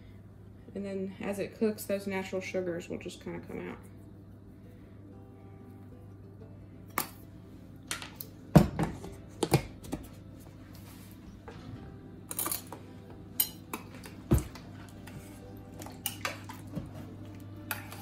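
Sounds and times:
faint low hum: 0.0s - 18.0s
spoon stirring in water: 14.8s - 18.0s.

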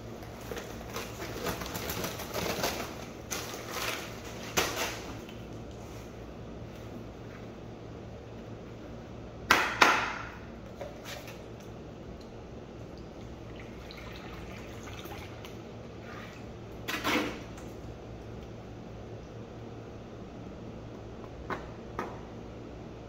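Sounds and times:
liquid trickling from jug: 13.1s - 15.6s.

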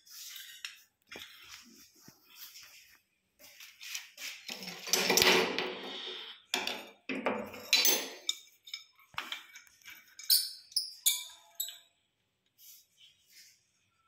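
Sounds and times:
metal clinks and scrapes: 7.4s - 11.9s.

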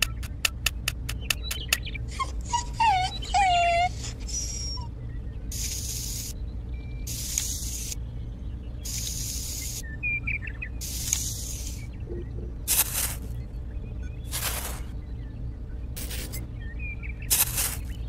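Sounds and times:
metal trowel scraping sand: 12.7s - 13.3s, 17.3s - 17.9s.

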